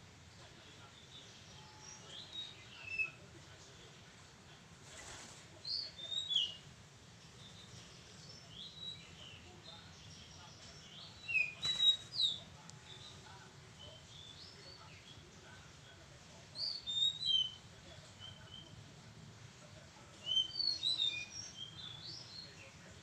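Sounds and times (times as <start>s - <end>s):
songbird chirps and whistles: 1.5s - 3.2s, 5.6s - 6.6s, 10.8s - 13.1s, 16.6s - 17.6s, 20.2s - 22.7s.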